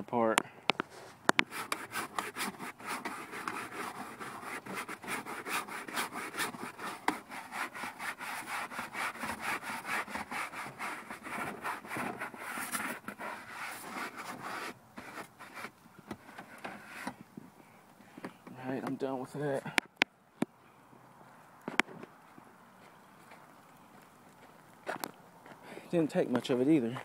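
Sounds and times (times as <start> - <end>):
rapid hand strokes: 0.9 - 15.8.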